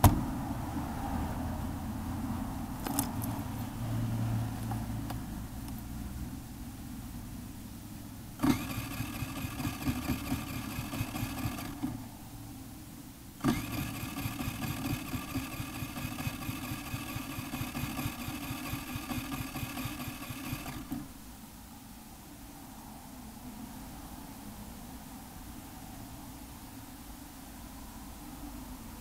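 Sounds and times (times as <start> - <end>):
scooter engine starting and running: 8.4 - 12.2, 13.4 - 21.1.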